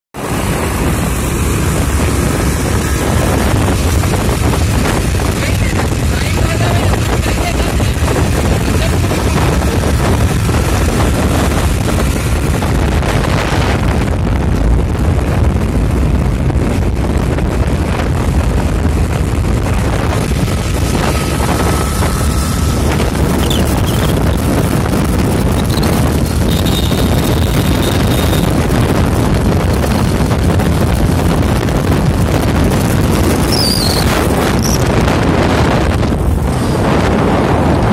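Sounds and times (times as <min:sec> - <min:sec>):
scooter engine and tyre noise: 0:00.2 - 0:37.9
wind over microphone: 0:00.2 - 0:37.9.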